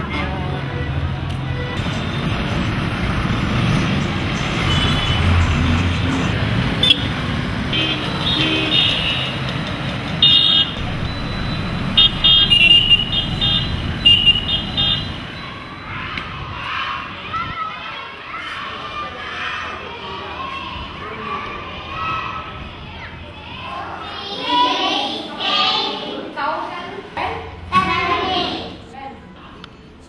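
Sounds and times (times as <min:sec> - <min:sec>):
road traffic: 0:00.0 - 0:30.0
short vehicle horn toots: 0:12.0 - 0:15.1.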